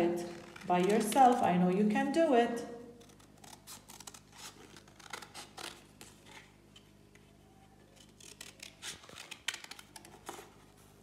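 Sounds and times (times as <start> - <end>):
scissors snipping paper: 0.3 - 1.5, 3.0 - 6.1, 7.9 - 10.5.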